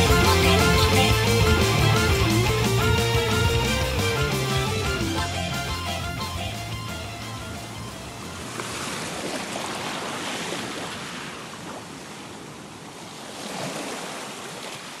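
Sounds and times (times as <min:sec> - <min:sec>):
waves washing onto beach: 0:08.0 - 0:15.0.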